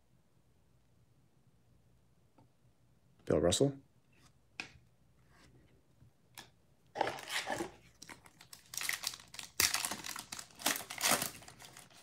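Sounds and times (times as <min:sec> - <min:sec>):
foil pack crinkling: 0:07.0 - 0:12.0
foil pack tearing open: 0:07.0 - 0:12.0.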